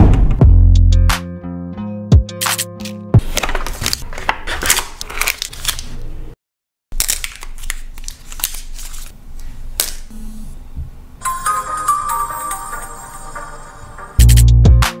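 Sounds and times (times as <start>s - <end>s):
music: 0.0s - 3.2s, 11.2s - 15.0s
plastic film crinkling: 3.2s - 6.1s, 7.0s - 10.0s.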